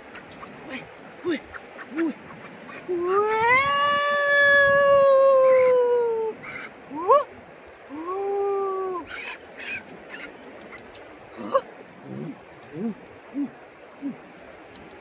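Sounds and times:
animal howling: 3.0 - 6.4
animal yelping: 5.4 - 6.7, 9.0 - 13.5.

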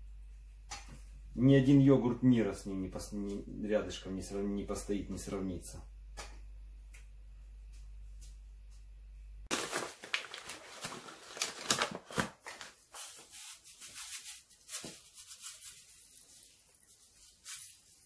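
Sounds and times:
paper packet crinkling: 9.5 - 18.0.

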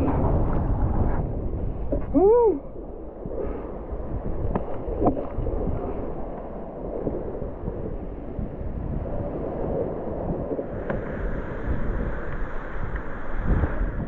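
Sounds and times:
water rushing and splashing: 0.0 - 14.0
wind buffeting microphone: 0.0 - 14.0.

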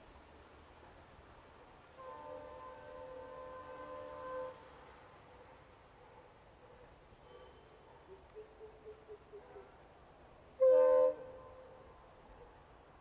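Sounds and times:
locomotive horn blast: 2.0 - 4.6.

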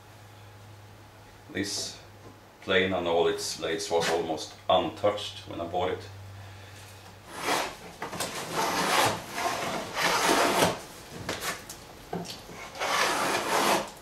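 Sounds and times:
hand plane rasping on wood: 7.3 - 10.8, 12.6 - 14.0.

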